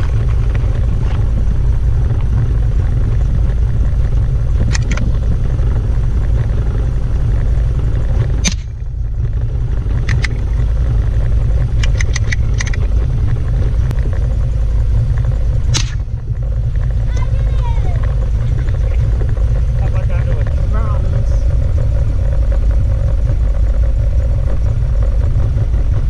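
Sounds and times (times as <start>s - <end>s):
wind buffeting microphone: 0.0s - 26.0s
rifle shot: 8.4s - 8.8s, 15.7s - 16.1s
faint sharp cracks and clicks: 15.2s - 16.1s.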